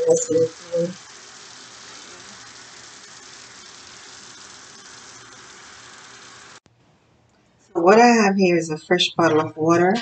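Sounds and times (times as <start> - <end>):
faucet running water: 0.0 - 6.6.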